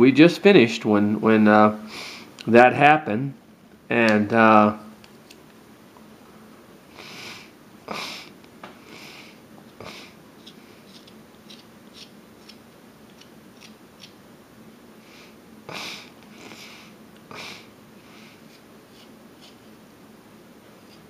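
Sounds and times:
knife shaving wood: 10.4 - 14.2, 18.4 - 19.7.

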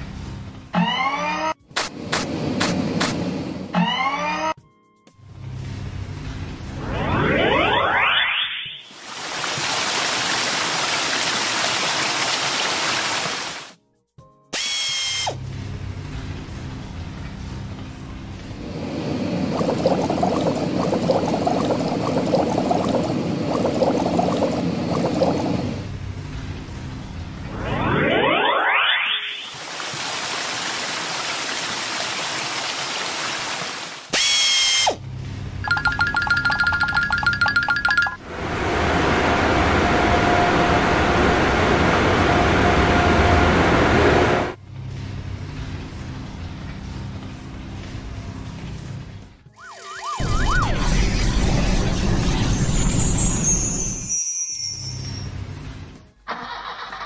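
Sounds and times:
cartoon soap bubbles popping: 19.4 - 25.6, 35.6 - 38.2.

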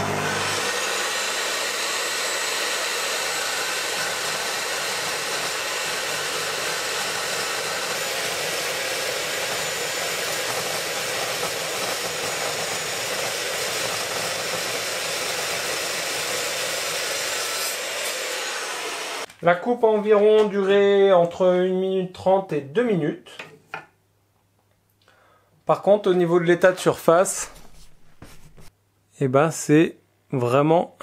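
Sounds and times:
metal saw cutting steel: 0.0 - 19.3.

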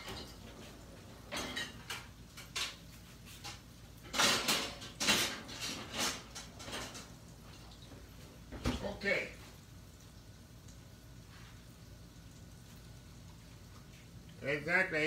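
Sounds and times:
kitchen clatters and scrapes: 0.0 - 8.9.

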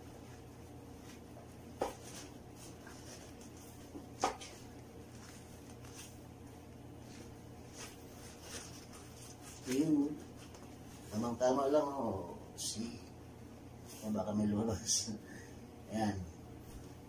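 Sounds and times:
low steady hum: 0.0 - 17.0
sneaker handling noises: 1.0 - 6.2.

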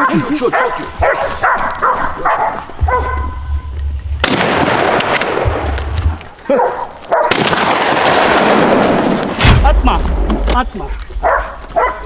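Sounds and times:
dogs yelping: 0.0 - 3.8, 6.3 - 7.4, 11.1 - 12.0.

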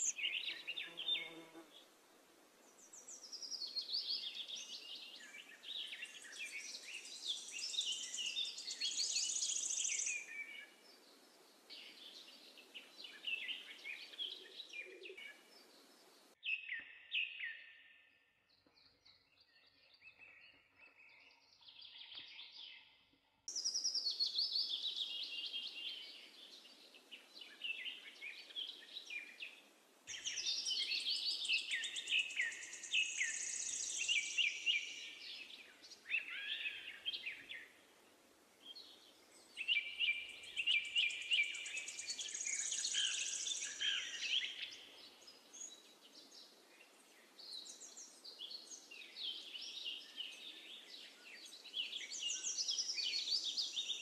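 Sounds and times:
birds chirping and singing: 0.0 - 1.5, 23.5 - 37.8, 38.6 - 54.0.

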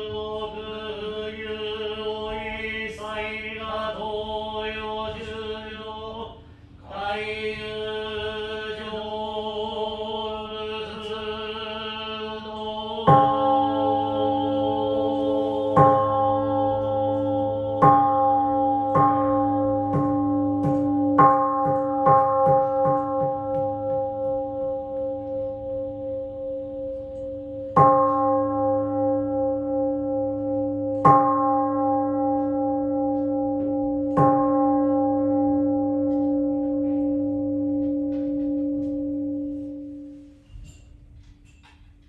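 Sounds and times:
bowl bell struck and ringing: 13.1 - 40.0.

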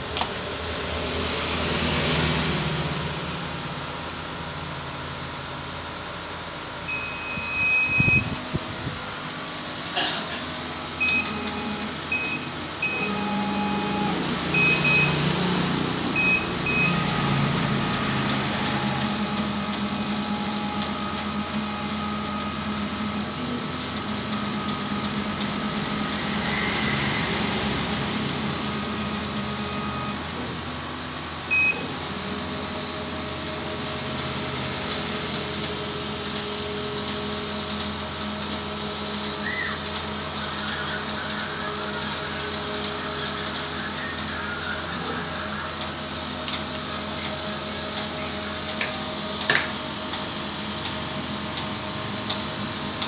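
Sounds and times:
machine hum: 0.0 - 53.0
short electronic beeps: 6.9 - 8.4, 12.1 - 15.2, 16.2 - 17.3, 31.5 - 31.8
stepper motors whining: 10.8 - 53.0.

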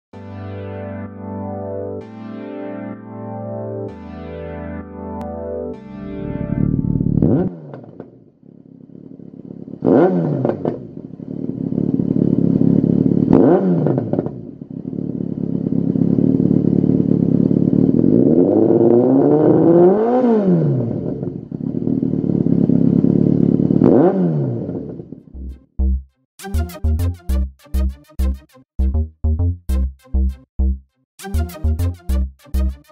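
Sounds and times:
motorcycle engine idling and revving: 6.6 - 26.1.

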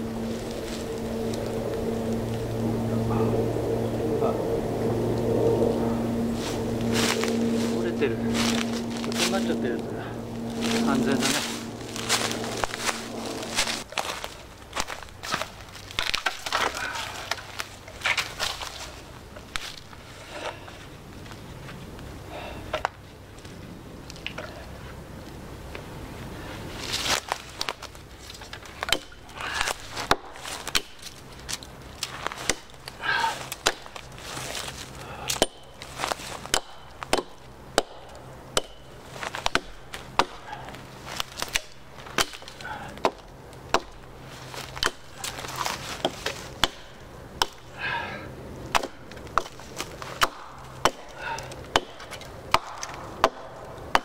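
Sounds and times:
blade chopping firewood: 14.8 - 18.8, 28.5 - 48.1, 48.7 - 54.0.

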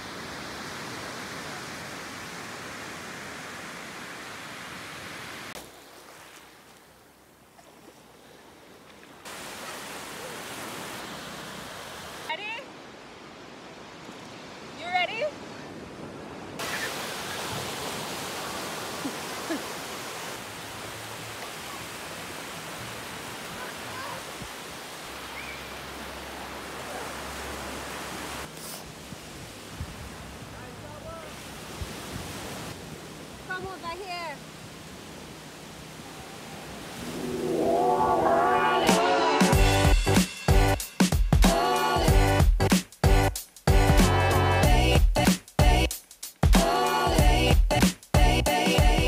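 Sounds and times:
surf washing onto sandy beach: 0.0 - 12.6, 13.3 - 39.3.

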